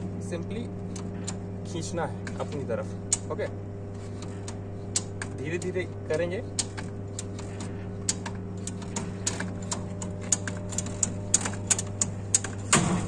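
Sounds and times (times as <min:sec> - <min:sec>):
steady low hum: 0:00.0 - 0:13.0
circuit breaker spring clicking: 0:03.1 - 0:03.4, 0:04.2 - 0:13.0.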